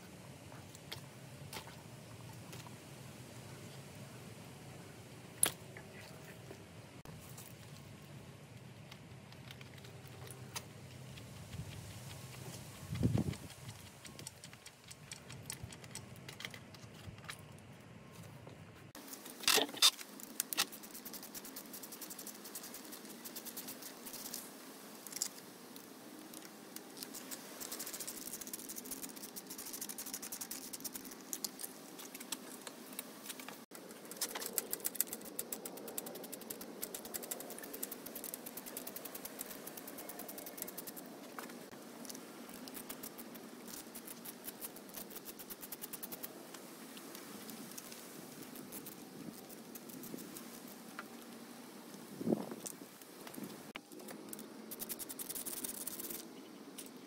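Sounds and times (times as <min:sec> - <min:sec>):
hand tools clicking and rattling: 0:12.9 - 0:17.6, 0:26.4 - 0:41.0.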